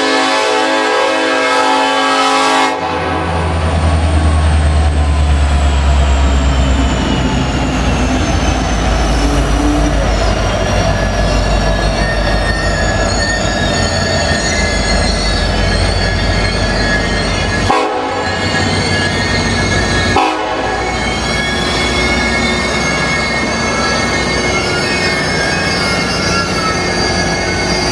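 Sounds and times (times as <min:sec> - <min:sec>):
diesel locomotives rumbling past: 0:00.0 - 0:27.9
steel wheels squealing on rail: 0:00.0 - 0:27.9.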